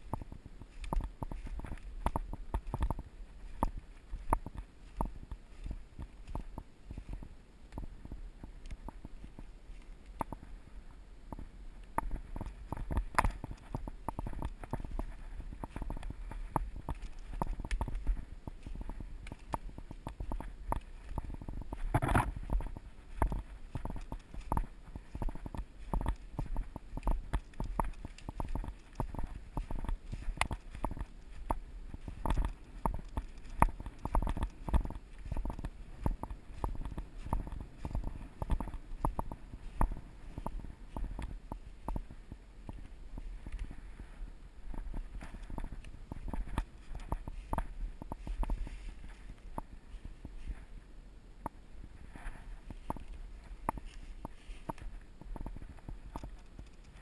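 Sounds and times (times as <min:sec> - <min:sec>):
microphone handling noise: 0:00.0 - 0:50.8
wind rumble on microphone: 0:00.0 - 0:57.0
footsteps crunching through dry leaves: 0:14.3 - 0:38.9.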